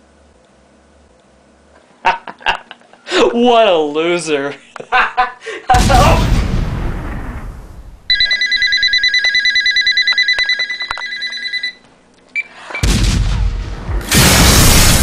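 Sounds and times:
telephone ringing warbling trill: 0:08.1 - 0:11.8.

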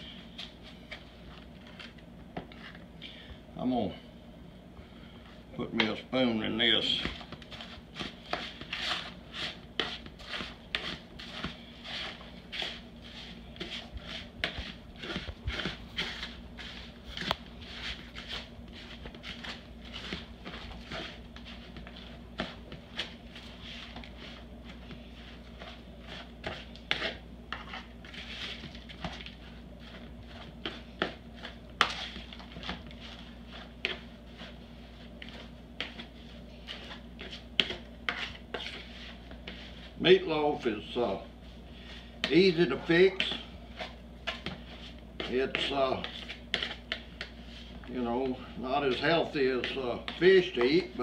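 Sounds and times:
soft squishing of food mix: 0:00.0 - 0:04.0, 0:04.7 - 0:51.0
steady low hum: 0:00.0 - 0:51.0
spoon scraping plastic bowl: 0:25.2 - 0:39.8.

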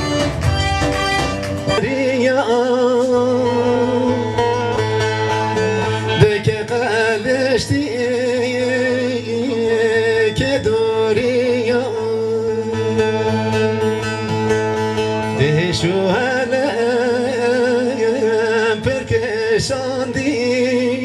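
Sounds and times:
small wind instrument: 0:00.0 - 0:02.0
strummed long-necked lute: 0:00.0 - 0:21.0
man singing: 0:01.6 - 0:13.8, 0:15.2 - 0:21.0.

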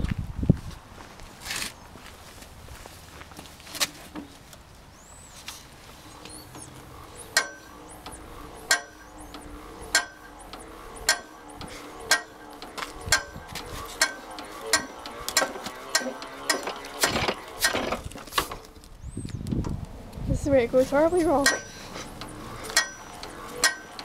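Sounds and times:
hand crank clicking: 0:06.6 - 0:18.6.

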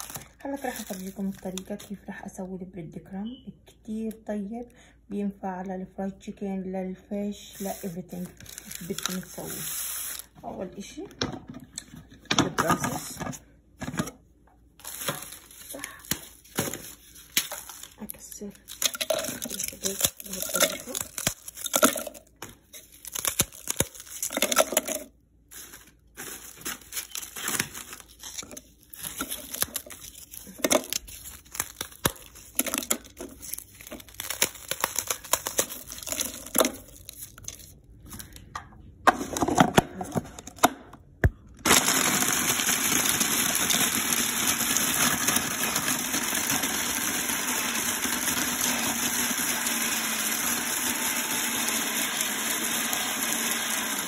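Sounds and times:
dry bread crackling and tearing: 0:00.0 - 0:01.8, 0:17.2 - 0:24.3, 0:25.6 - 0:37.9
food processor grinding: 0:18.7 - 0:22.2, 0:23.1 - 0:25.1, 0:41.7 - 0:54.0.

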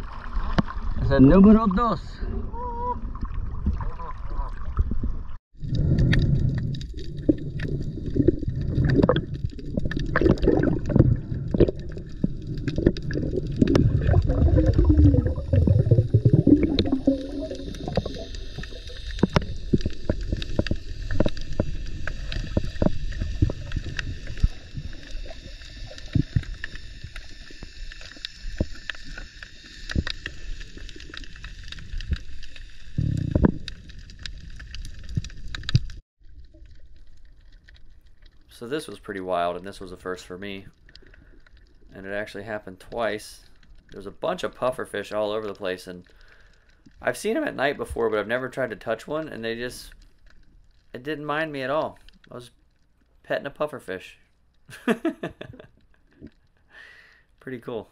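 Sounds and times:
underwater gurgling and churning: 0:00.0 - 0:01.6, 0:02.2 - 0:50.9.

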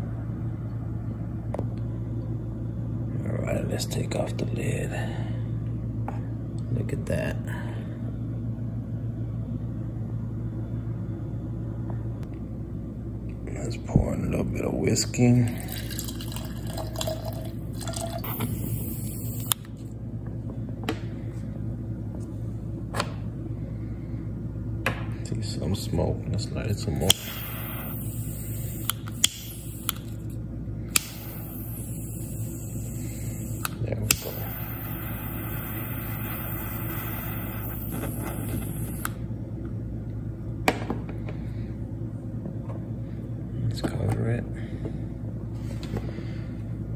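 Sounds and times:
steady low hum: 0:00.0 - 0:46.9
liquid pouring and gurgling: 0:15.5 - 0:18.4
torch lighter hissing: 0:18.2 - 0:19.6, 0:27.0 - 0:30.2, 0:30.9 - 0:39.2
sharp click: 0:28.9 - 0:30.0.

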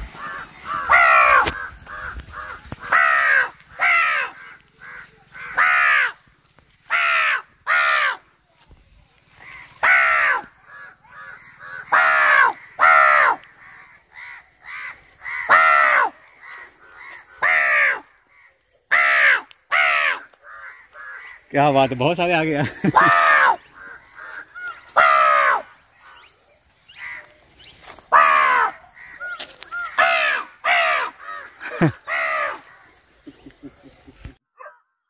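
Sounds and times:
crows cawing: 0:00.0 - 0:08.3, 0:09.3 - 0:21.6, 0:22.6 - 0:33.1
man imitating crow caws: 0:22.6 - 0:25.6.

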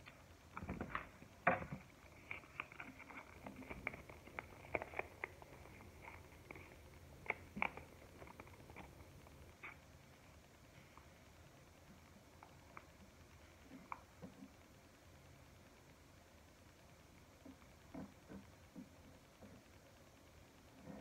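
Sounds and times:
foil packet crinkling: 0:02.1 - 0:08.9.

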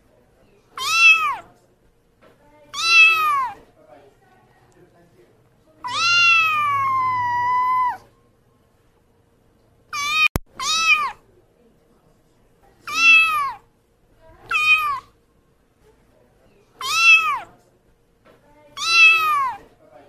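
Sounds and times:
kitten meowing: 0:00.8 - 0:01.5, 0:02.7 - 0:03.6, 0:05.8 - 0:08.1, 0:09.9 - 0:11.2, 0:12.9 - 0:13.6, 0:14.4 - 0:15.1, 0:16.8 - 0:17.5, 0:18.8 - 0:19.6.

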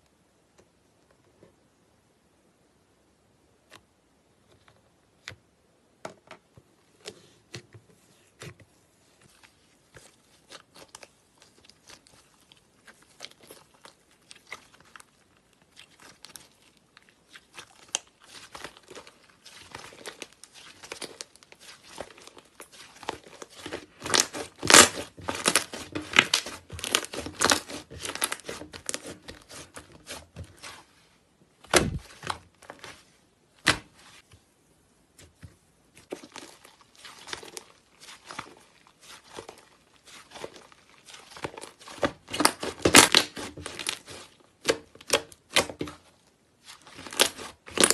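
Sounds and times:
slime squelch: 0:06.8 - 0:47.9
slime crackling and popping: 0:09.4 - 0:30.8, 0:36.0 - 0:47.9.

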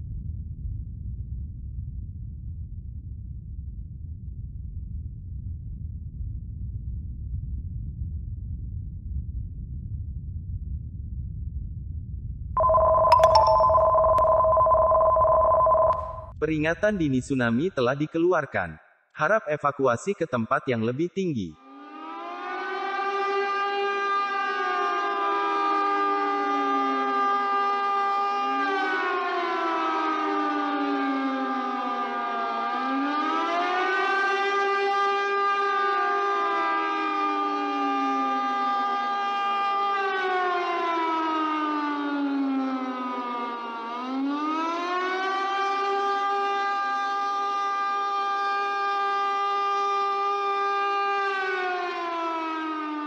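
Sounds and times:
low earthquake rumble: 0:00.0 - 0:13.1
two-tone warning alarm: 0:12.6 - 0:16.4, 0:24.4 - 0:34.3
warning siren wailing: 0:12.6 - 0:16.4, 0:21.6 - 0:53.0.

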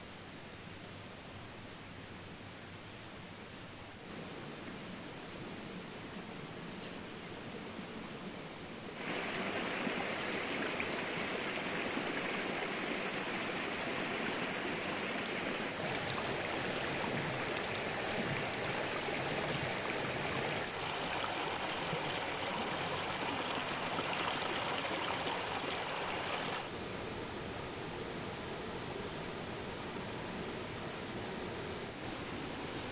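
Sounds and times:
stream babbling over stones: 0:09.0 - 0:26.7.

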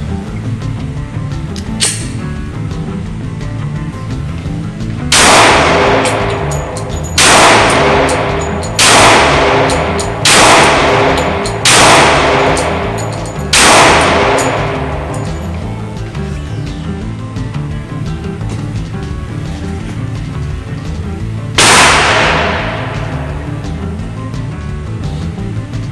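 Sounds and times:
background music: 0:00.0 - 0:25.9
pistol shots echoing indoors: 0:01.8 - 0:02.2, 0:05.1 - 0:15.7, 0:21.6 - 0:23.8.

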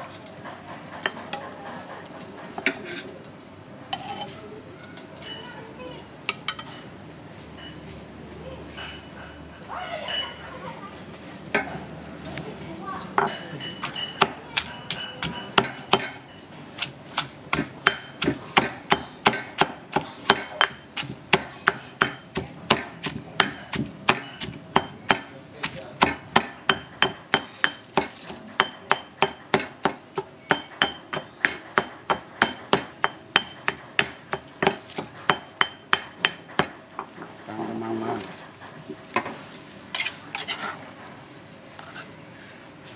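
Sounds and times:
knife chopping food: 0:13.8 - 0:16.2, 0:16.8 - 0:36.8.

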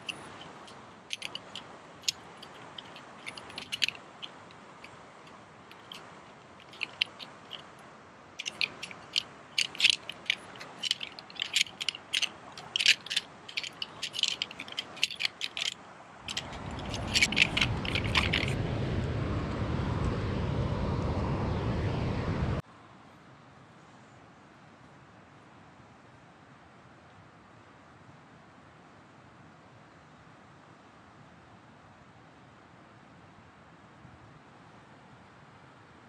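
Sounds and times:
metal poles clacking: 0:00.0 - 0:07.7, 0:08.4 - 0:18.6.

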